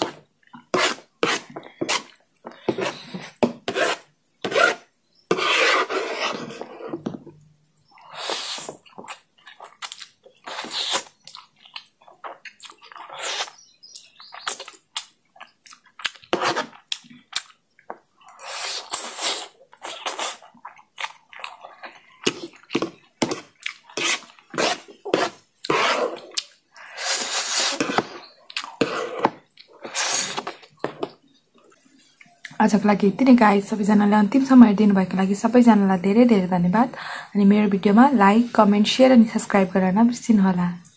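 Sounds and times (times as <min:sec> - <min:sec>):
slurping noodles: 0:08.0 - 0:09.2, 0:10.4 - 0:11.2, 0:18.3 - 0:20.8, 0:21.4 - 0:30.7
chewing and mouth clicks: 0:08.7 - 0:24.5, 0:26.3 - 0:26.6, 0:28.2 - 0:28.8.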